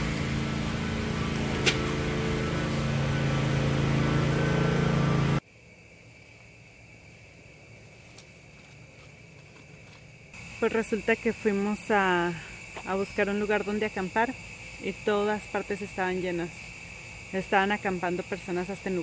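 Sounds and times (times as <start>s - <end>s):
night insects trilling: 5.4s - 19.0s.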